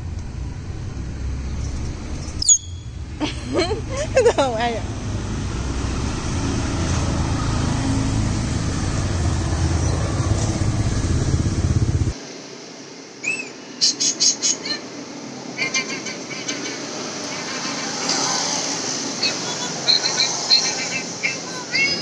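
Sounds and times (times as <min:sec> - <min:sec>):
low outdoor rumble: 0:00.0 - 0:12.2
sharp high bird chirps: 0:01.6 - 0:03.0, 0:13.2 - 0:14.4
parakeet call: 0:19.2 - 0:21.4.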